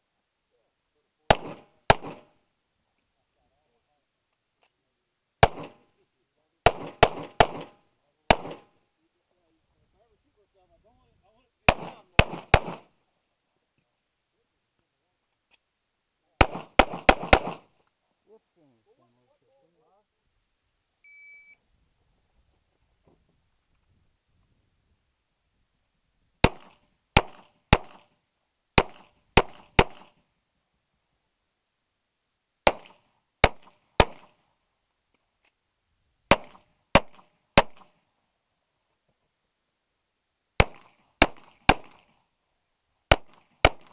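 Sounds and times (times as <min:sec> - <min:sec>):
pistol shots with ringing echo: 0:01.3 - 0:02.3, 0:05.4 - 0:05.8, 0:06.6 - 0:08.7, 0:11.7 - 0:12.9, 0:16.4 - 0:17.7, 0:26.4 - 0:28.1, 0:28.8 - 0:30.2, 0:32.7 - 0:34.4, 0:36.3 - 0:37.9, 0:40.6 - 0:42.1, 0:43.1 - 0:43.9.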